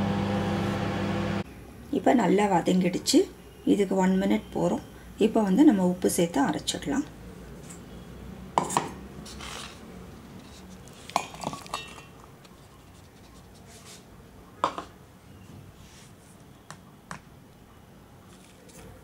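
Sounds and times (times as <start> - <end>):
kitchenware clinking and knocking: 11.2 - 12.2.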